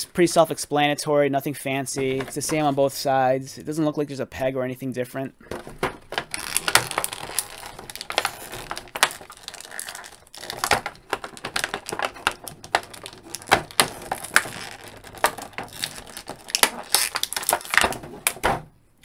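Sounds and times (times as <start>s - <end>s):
plastic parts clicking: 5.5s - 18.6s
packaging crinkling: 5.6s - 18.4s.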